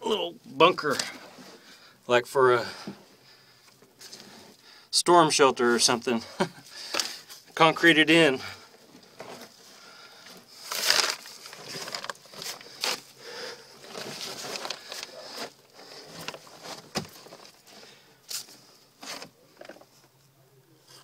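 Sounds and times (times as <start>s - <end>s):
rustling handling noise: 0.4s - 2.0s, 2.7s - 4.7s, 6.6s - 20.4s.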